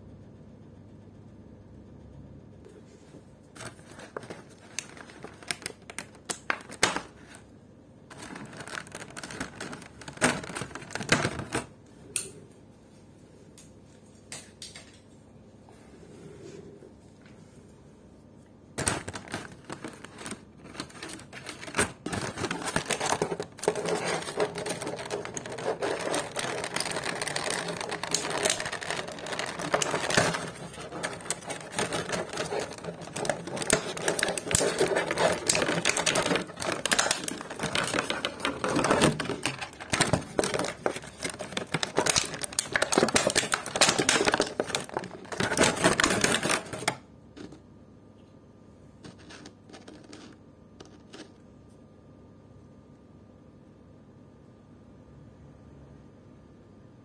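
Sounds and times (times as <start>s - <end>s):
plastic tray crinkling: 3.6s - 7.5s, 8.1s - 11.7s, 18.8s - 47.6s, 49.0s - 51.4s.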